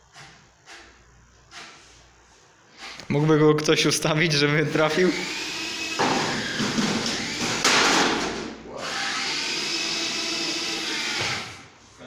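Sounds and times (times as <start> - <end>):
robot motors whirring: 8.8 - 11.6.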